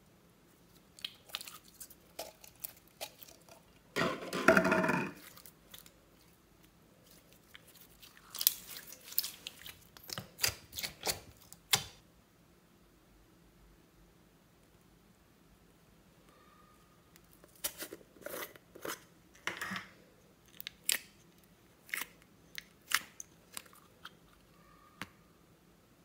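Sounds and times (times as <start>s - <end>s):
slime squelching: 0.7s - 3.9s, 5.1s - 12.0s, 21.8s - 24.5s.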